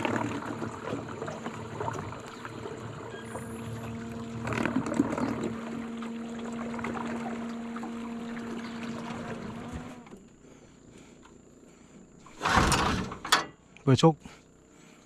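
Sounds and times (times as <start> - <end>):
water splashes and knocks: 0.0 - 3.1, 3.8 - 10.1
boat motor humming: 0.0 - 15.0.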